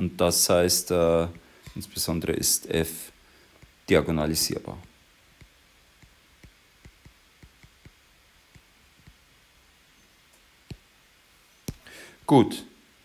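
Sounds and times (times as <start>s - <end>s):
stylus tapping tablet screen: 4.8s - 9.3s, 10.6s - 10.9s, 11.6s - 11.8s.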